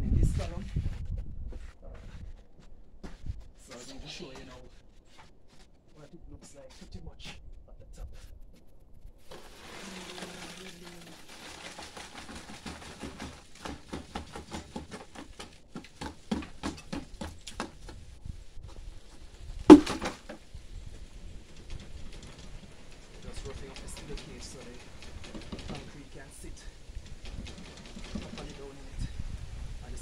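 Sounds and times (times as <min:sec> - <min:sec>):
wet concrete sliding from bucket: 0:09.3 - 0:15.2
quick knocks on formwork: 0:19.7 - 0:20.4.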